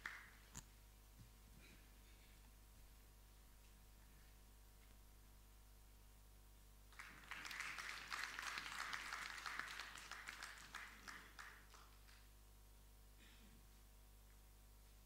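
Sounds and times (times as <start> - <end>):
audience applauding: 0.0 - 0.4, 6.9 - 12.3.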